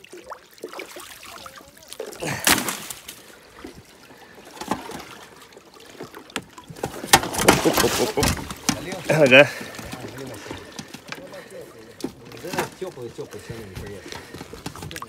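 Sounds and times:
water rushing: 0.0 - 15.0
water trickling: 0.0 - 15.0
kayak frame knocking: 4.4 - 15.0.

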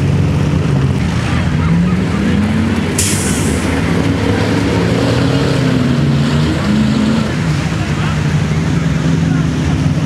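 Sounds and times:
truck engines running: 0.0 - 10.0
short sharp hiss: 3.0 - 3.6.

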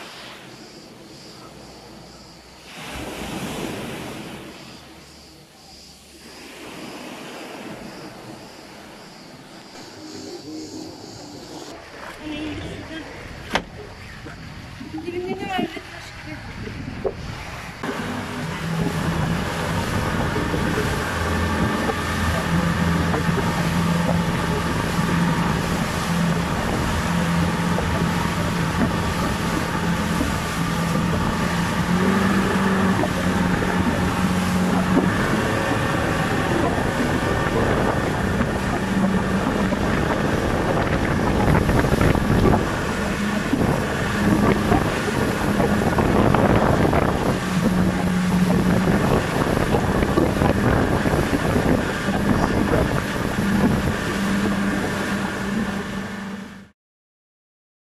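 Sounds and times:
wake rushing: 0.0 - 56.6
outboard motor drone: 0.0 - 56.8
wind buffeting microphone: 6.6 - 56.4.

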